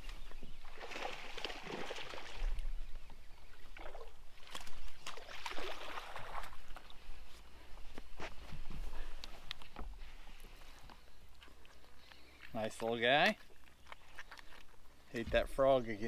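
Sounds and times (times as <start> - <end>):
water splashing: 0.6 - 2.8, 3.6 - 7.0.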